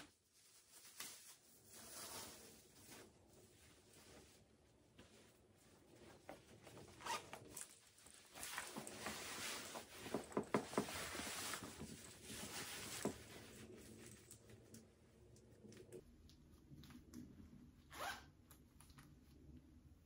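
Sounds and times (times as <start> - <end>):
fabric rustling: 0.0 - 14.6
zipper rasping: 6.9 - 7.7, 17.9 - 18.3.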